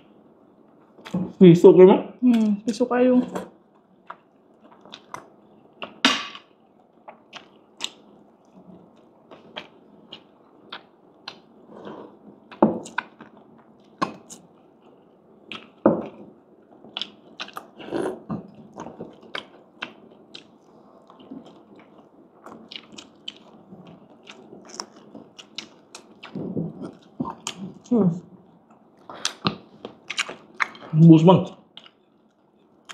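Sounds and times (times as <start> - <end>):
crunchy chewing: 6.8 - 27.9, 28.6 - 31.0.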